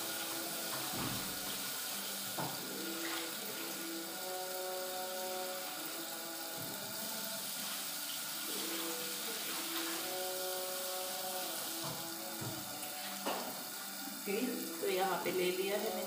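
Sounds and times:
potatoes rinsed in a pan: 0.0s - 16.0s
tap running into steel sink: 0.6s - 1.5s, 2.3s - 2.7s, 11.8s - 13.6s.

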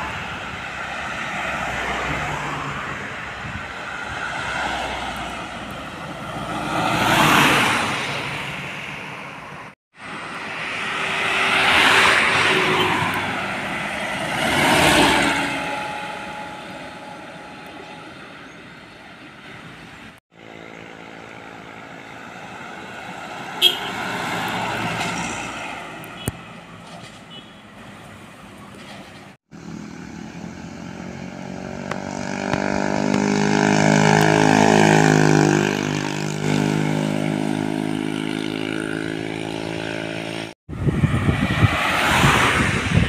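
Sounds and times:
road traffic passing: 0.0s - 43.0s
tyre and engine pass-bys: 10.0s - 43.0s.

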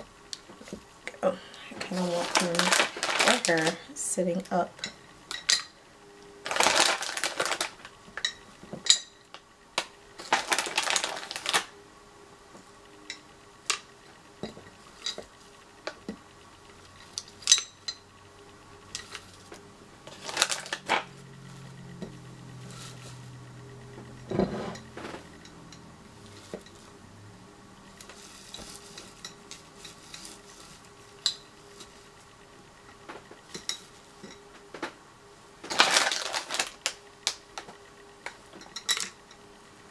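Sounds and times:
plastic rustling: 1.6s - 4.1s, 6.4s - 8.0s, 10.2s - 11.7s, 19.0s - 21.7s, 22.6s - 23.3s, 27.9s - 32.3s, 35.6s - 37.7s.

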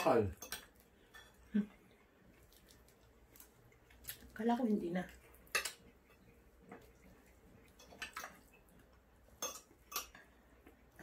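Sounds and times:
cutlery clinking on ceramic plates: 0.0s - 1.5s, 5.5s - 6.2s, 7.6s - 8.6s, 9.3s - 10.4s.

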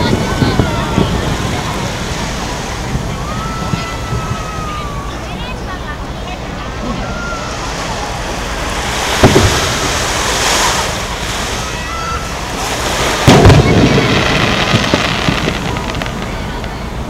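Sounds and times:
steady background noise: 0.0s - 17.0s.

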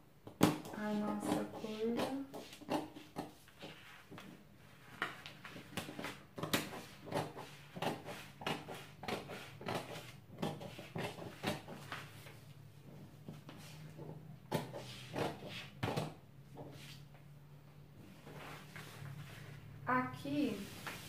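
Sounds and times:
scissors snipping paper: 5.6s - 11.8s
paper rustling: 20.5s - 21.0s.

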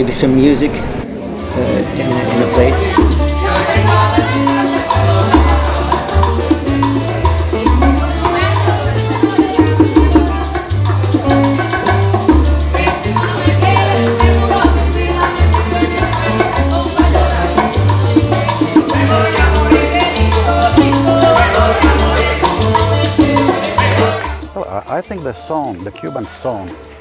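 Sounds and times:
acoustic guitars strumming: 0.2s - 27.0s
maracas shaking: 1.1s - 27.0s
upright bass: 1.3s - 27.0s
woman singing: 3.0s - 11.0s, 12.6s - 24.3s
man singing: 18.8s - 27.0s.

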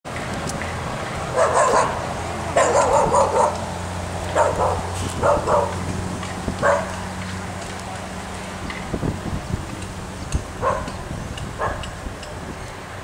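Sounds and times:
dog barking: 1.3s - 2.0s, 2.6s - 3.6s, 4.3s - 5.8s, 6.6s - 7.0s, 10.6s - 11.0s, 11.6s - 11.9s.

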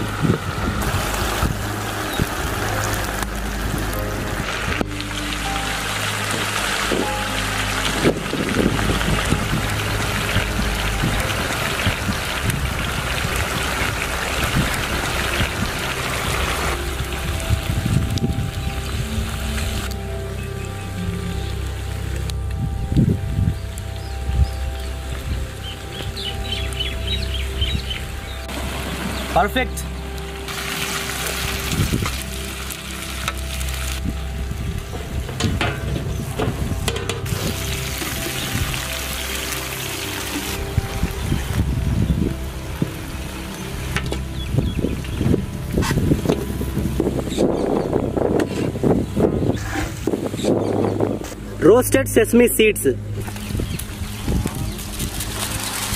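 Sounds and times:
chicken sizzling in hot oil: 30.5s - 46.4s.

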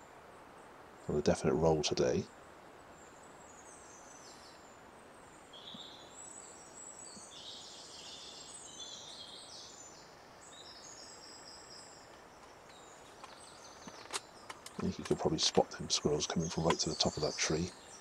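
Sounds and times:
faint steady hiss: 0.0s - 18.0s
small birds trilling: 0.0s - 18.0s.

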